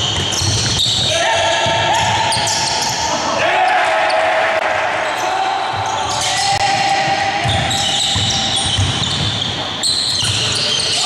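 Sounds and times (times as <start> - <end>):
basketball dribbling thuds: 0.0 - 2.6, 7.4 - 9.7
trainers squeaking on floor: 0.0 - 3.1, 7.4 - 11.0
players calling out: 0.3 - 11.0.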